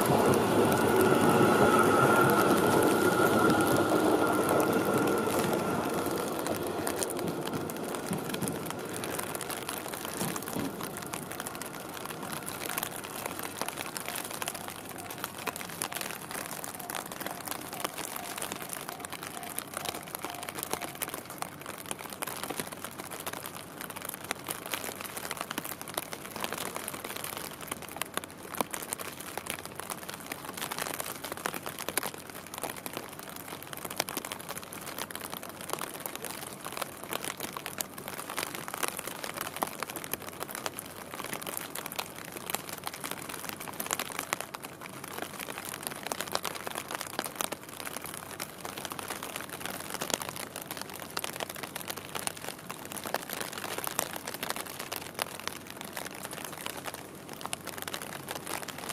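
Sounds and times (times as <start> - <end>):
steady rain: 0.0 - 58.9.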